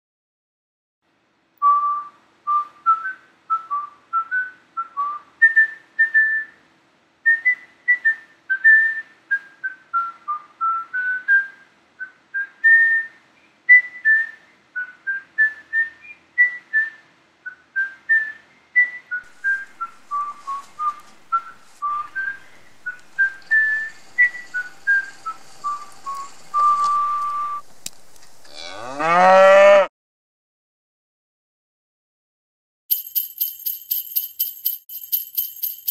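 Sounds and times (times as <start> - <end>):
person whistling a tune: 1.6 - 6.6, 7.3 - 27.6
faint hiss: 19.2 - 28.6.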